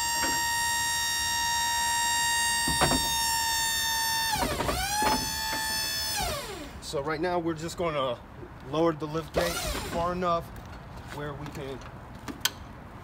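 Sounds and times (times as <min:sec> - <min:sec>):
hydraulic pump motor whining: 0:00.0 - 0:06.8, 0:09.4 - 0:10.1.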